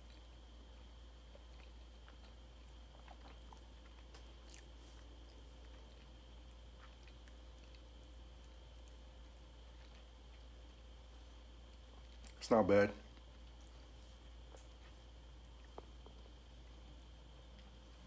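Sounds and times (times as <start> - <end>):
wet chewing clicks: 0.0 - 10.8
steady low hum: 0.0 - 18.0.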